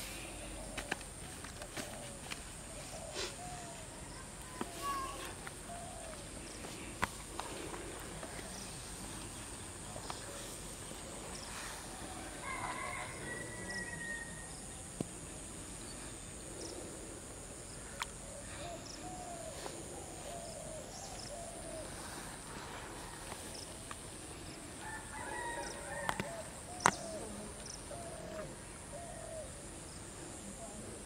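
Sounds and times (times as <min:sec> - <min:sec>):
steady high hiss: 0:00.0 - 0:31.0
bird calling: 0:01.6 - 0:07.0.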